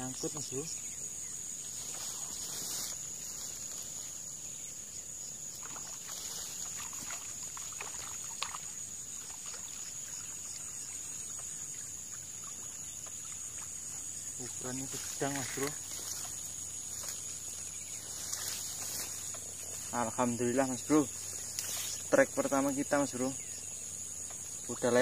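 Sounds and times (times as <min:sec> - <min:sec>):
insects droning: 0:00.0 - 0:25.0
rustling: 0:01.7 - 0:04.3, 0:14.9 - 0:20.0
small splashes in water: 0:05.5 - 0:17.3.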